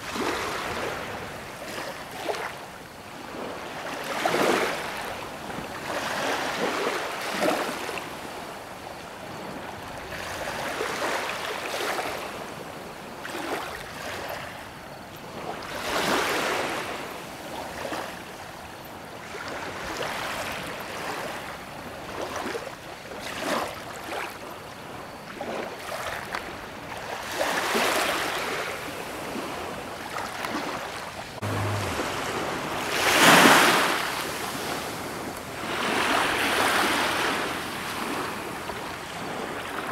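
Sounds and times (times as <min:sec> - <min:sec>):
sea waves surging: 0:25.4 - 0:39.9.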